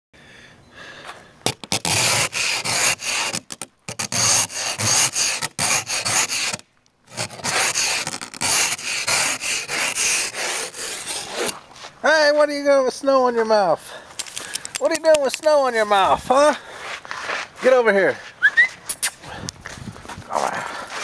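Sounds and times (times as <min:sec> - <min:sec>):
ice scraper scraping window: 0:01.5 - 0:11.6.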